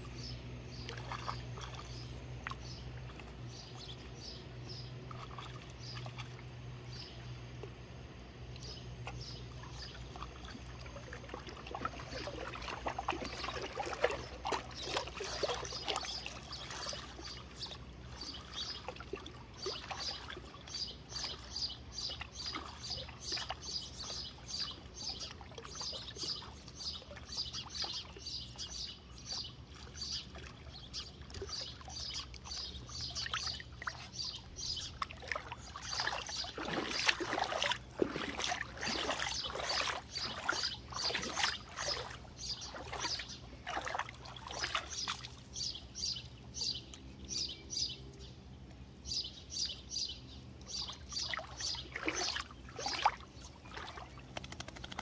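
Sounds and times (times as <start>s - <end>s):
puppy splashing in shallow water: 0.0s - 55.0s
water dripping: 35.0s - 43.0s.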